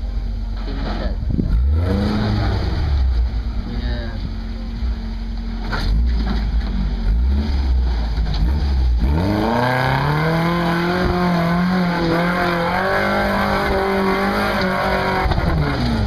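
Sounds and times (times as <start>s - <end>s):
truck engine revving hard: 1.3s - 3.3s, 5.7s - 16.0s.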